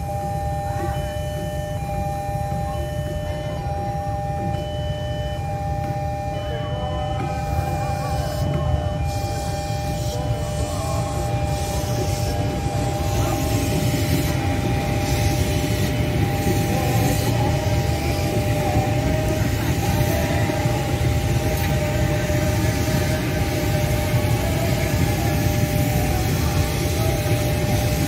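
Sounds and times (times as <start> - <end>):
steady high tones: 0.0 - 28.0
train wheels rumbling on rails: 7.1 - 28.0.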